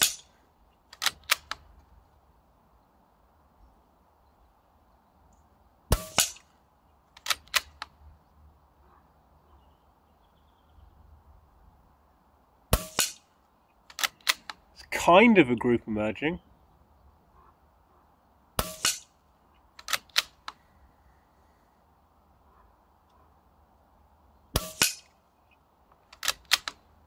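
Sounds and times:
air rifle shot: 0.0 - 0.4, 5.9 - 6.5, 12.7 - 13.3, 18.6 - 19.1, 24.5 - 25.2
rifle lever clicks: 0.9 - 1.7, 7.1 - 8.0, 13.8 - 14.6, 19.8 - 20.6, 25.9 - 26.8.

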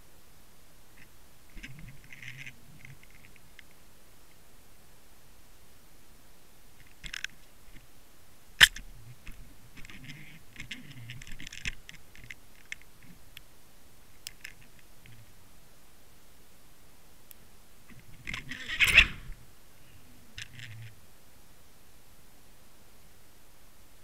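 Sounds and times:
faint steady hiss: 0.0 - 24.0
sharp clicks and scratchy crackles: 1.0 - 3.8, 6.8 - 7.9, 8.6 - 13.5, 14.1 - 15.3, 17.3 - 19.4, 20.4 - 21.0
scraping crackles: 1.5 - 3.8, 8.6 - 13.2, 17.9 - 19.4.

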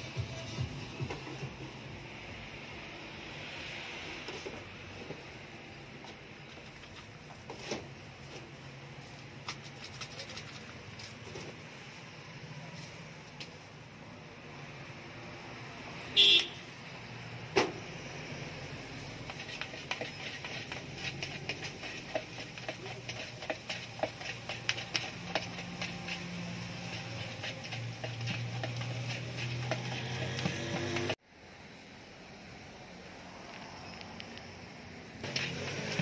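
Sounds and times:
car horn toot: 16.2 - 16.6
spoon scraping plastic bowl: 19.2 - 31.2, 35.2 - 36.0.

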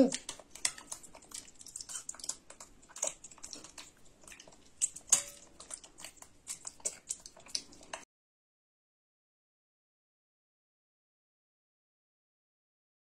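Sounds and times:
chewing: 0.0 - 8.1
metal spoon clinking on china bowl: 0.1 - 8.0.

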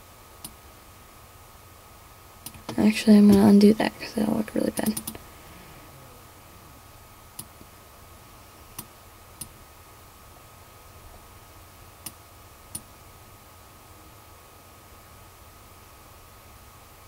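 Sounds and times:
faint hiss: 0.0 - 17.0
computer mouse clicks: 4.7 - 5.2.

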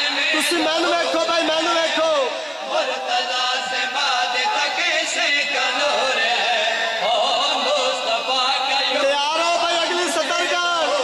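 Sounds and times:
men chanting: 0.0 - 11.0.

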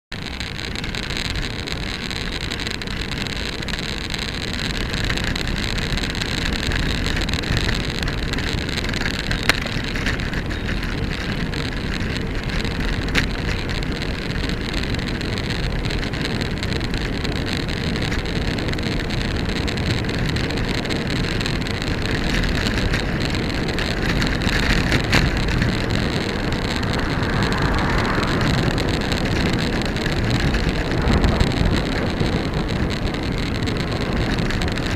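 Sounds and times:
bicycle tyre and road noise: 0.1 - 34.9
sharp clicks from bumps: 0.2 - 34.9
wind rumble on microphone: 0.2 - 34.9.

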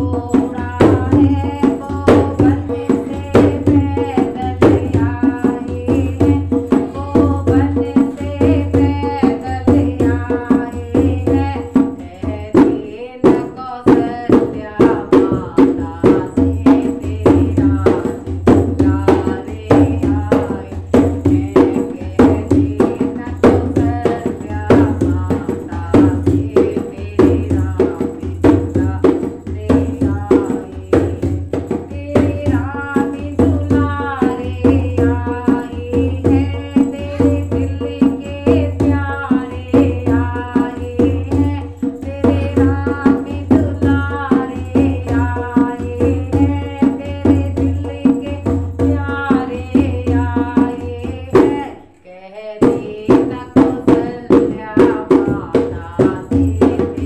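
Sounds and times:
hand drum rhythm: 0.0 - 57.0
woman singing: 0.0 - 57.0.

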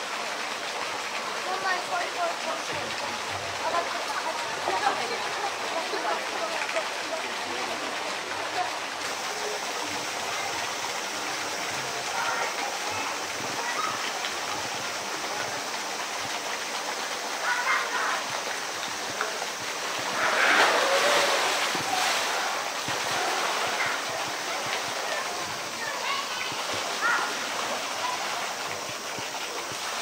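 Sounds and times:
running water: 0.0 - 30.0
animal splashing into water: 19.2 - 25.3.

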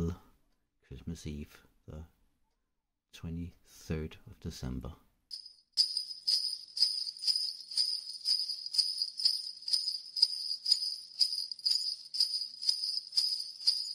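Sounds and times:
jingle bells shaken: 5.3 - 13.9.

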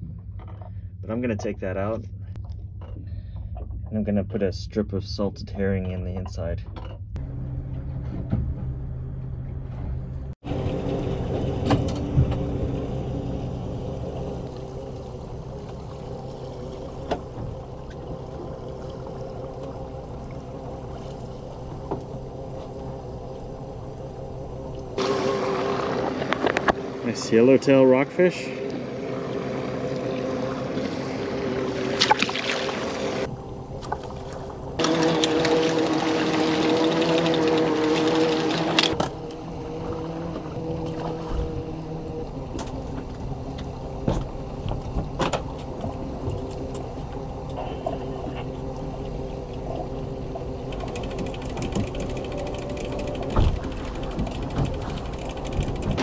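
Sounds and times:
boat motor humming: 0.0 - 56.0
water: 10.4 - 56.0
fishing gear clicking: 50.6 - 56.0.

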